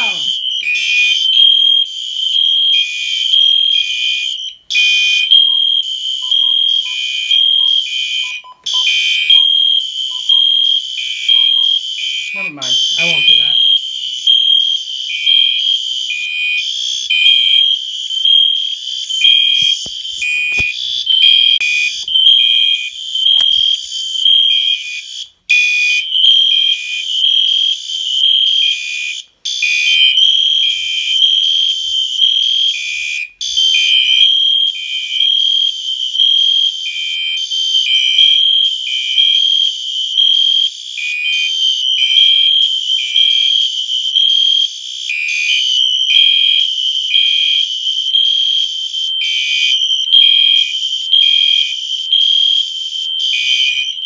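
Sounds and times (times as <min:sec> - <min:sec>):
steady shrill alarm tone: 0:00.0 - 0:25.2
pulsing fire alarm horns: 0:00.0 - 0:54.0.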